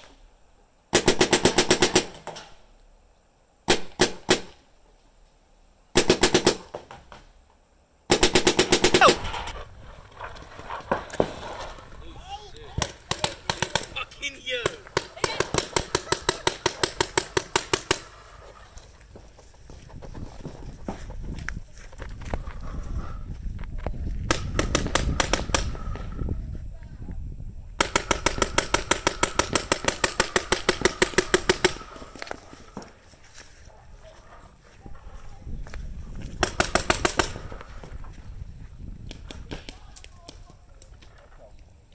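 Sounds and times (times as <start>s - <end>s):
paintball marker firing bursts: 0.9s - 2.3s, 3.7s - 4.6s, 5.9s - 6.8s, 8.1s - 9.4s, 12.8s - 14.0s, 14.6s - 18.2s, 24.3s - 25.9s, 27.8s - 32.2s, 36.4s - 37.6s.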